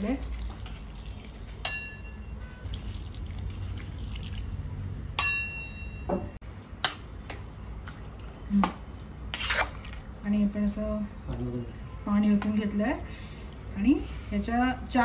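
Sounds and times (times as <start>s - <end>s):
water pouring into metal pot: 0.0s - 1.4s, 2.6s - 4.7s.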